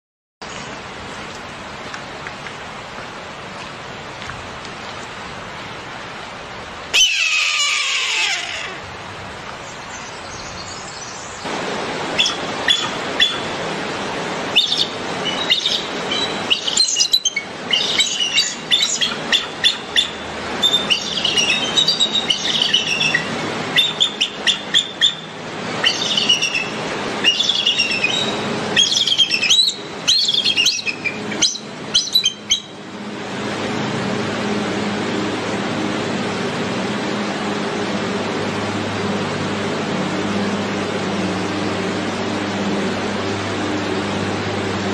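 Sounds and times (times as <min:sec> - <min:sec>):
hawk scream: 0:06.9 - 0:08.9
eagle chirping and chittering: 0:14.5 - 0:32.7.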